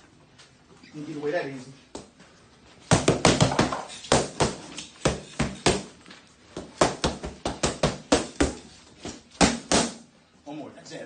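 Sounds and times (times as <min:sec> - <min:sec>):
boxing gloves smacking focus mitts: 0:02.8 - 0:10.0.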